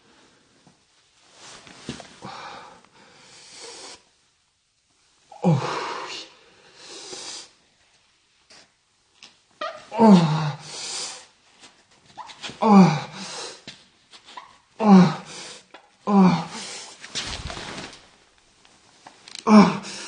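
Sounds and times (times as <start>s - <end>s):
man straining breathily: 5.3s - 6.4s, 9.9s - 11.3s, 12.6s - 13.6s, 14.8s - 17.0s, 19.4s - 20.0s.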